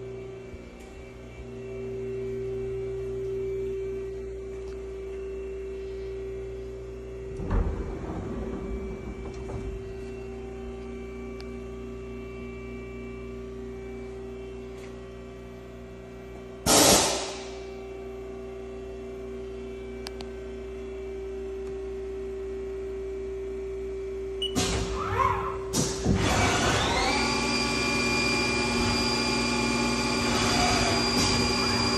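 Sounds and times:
lathe electrical hum: 0.0 - 31.9
knocks and clatter: 7.3 - 10.4
thump: 7.3 - 10.4
loud burst of noise: 7.3 - 10.6, 16.7 - 17.6.

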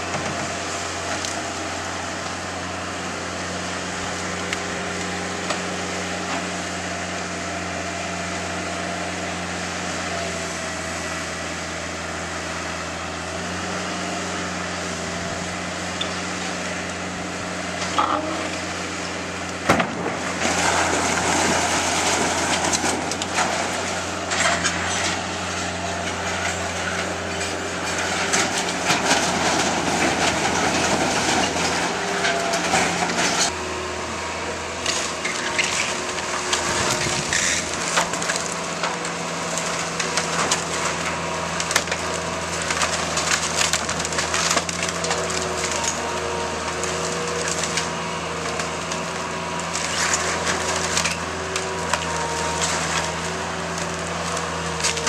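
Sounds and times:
diesel engine running: 0.0 - 55.0
timber cracking and splintering: 19.3 - 33.6, 34.8 - 55.0.

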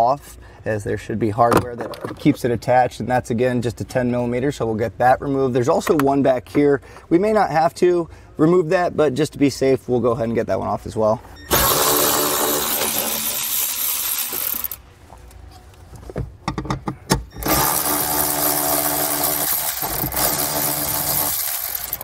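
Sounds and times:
electric ratchet motor whine: 11.5 - 14.8, 17.4 - 22.0.

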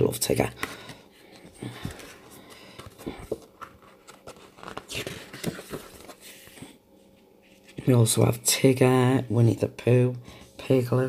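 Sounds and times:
paper rustling: 0.6 - 6.7.

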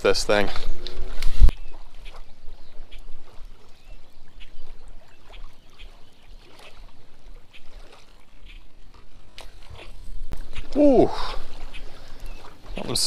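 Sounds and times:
wind rumble on microphone: 0.5 - 3.6
lure splashing on water: 0.8 - 13.0.

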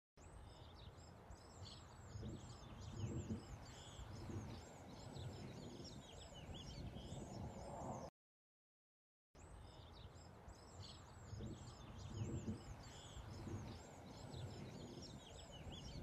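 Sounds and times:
small birds chirping: 0.2 - 8.1, 9.4 - 16.0
wind on microphone: 2.1 - 8.1, 11.2 - 16.0.

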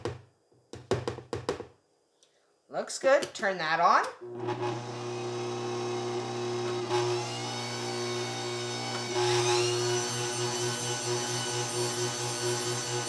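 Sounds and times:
stand mixer motor whining: 4.2 - 13.0.

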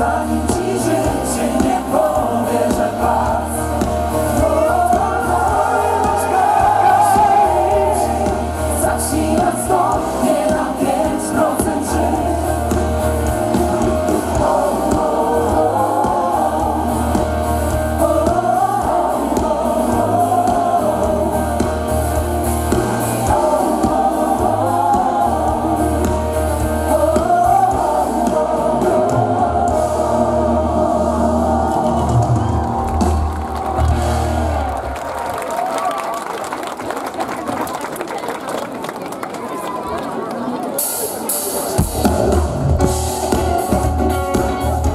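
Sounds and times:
women singing in harmony: 0.0 - 22.0, 22.9 - 32.5
pop band with bass and drums: 0.0 - 35.6, 40.8 - 44.9.

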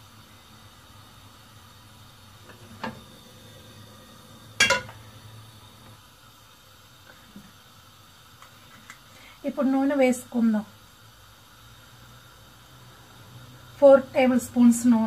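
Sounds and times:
metal pot knocking on stove grate: 4.6 - 5.0.

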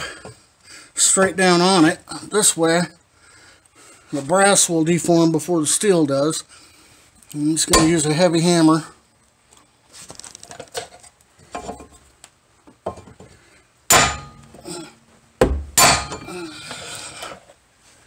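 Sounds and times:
hammer striking metal: 7.7 - 8.1, 13.9 - 14.6, 15.4 - 16.3.

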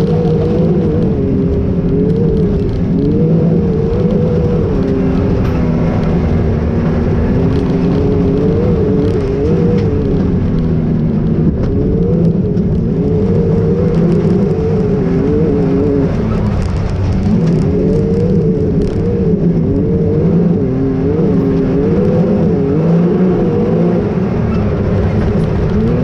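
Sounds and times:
engine revving up and down: 0.0 - 26.0.

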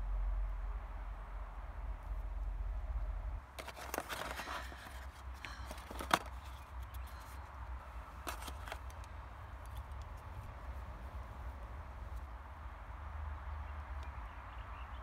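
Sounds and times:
steady low rumble: 0.0 - 13.0
packaging rustling: 3.5 - 7.4, 8.2 - 9.1
box clicks: 3.6 - 7.4, 8.2 - 10.0.

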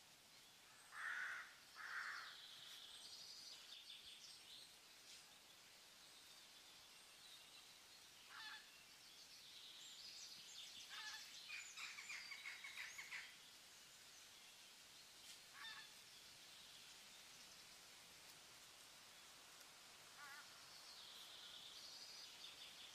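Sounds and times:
outdoor ambient hiss: 0.0 - 22.9
bird calls: 8.2 - 8.8, 10.0 - 13.4, 15.3 - 16.0.

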